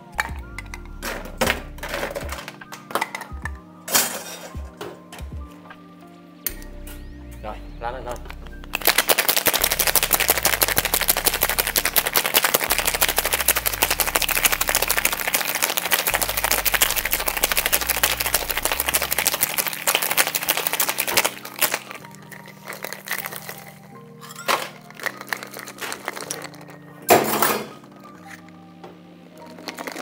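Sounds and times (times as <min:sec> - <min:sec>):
ice rattling in cocktail shaker: 0:08.8 - 0:26.8, 0:29.4 - 0:30.0.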